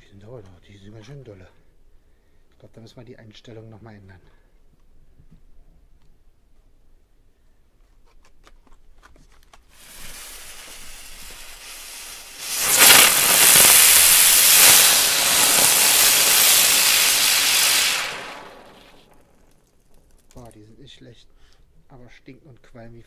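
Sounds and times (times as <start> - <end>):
firework spinner hissing: 9.7 - 19.4.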